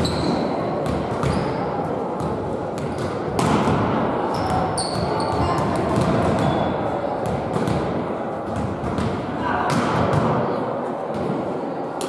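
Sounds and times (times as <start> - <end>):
shoe squeak: 0.0 - 0.5, 1.2 - 1.7, 4.3 - 5.7, 6.4 - 6.8
echoing hubbub of voices: 0.0 - 12.0.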